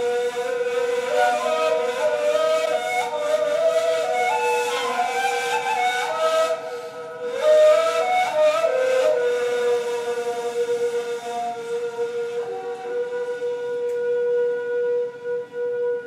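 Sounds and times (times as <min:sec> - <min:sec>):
breathy cane flute melody: 0:00.0 - 0:16.0
cane flute holding low note: 0:00.0 - 0:16.0.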